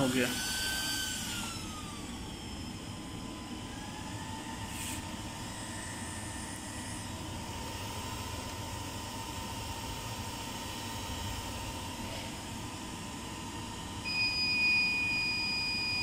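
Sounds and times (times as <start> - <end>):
cooling fans running: 0.0 - 16.0.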